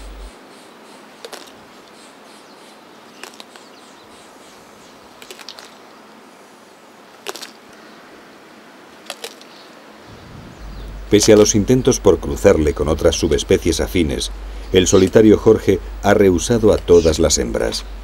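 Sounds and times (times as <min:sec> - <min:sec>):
faint outdoor hiss: 0:00.0 - 0:18.0
tortoise crunching cactus: 0:01.2 - 0:01.6, 0:03.2 - 0:03.7, 0:05.1 - 0:05.9, 0:07.2 - 0:07.7, 0:09.0 - 0:09.6.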